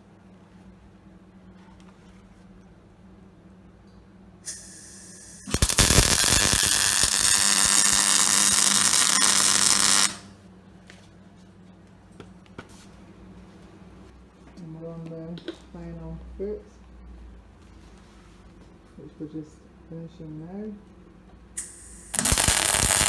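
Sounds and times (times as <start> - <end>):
gas hiss: 4.4 - 9.2, 21.6 - 23.0
welding arc crackling: 4.5 - 10.3, 21.6 - 23.0.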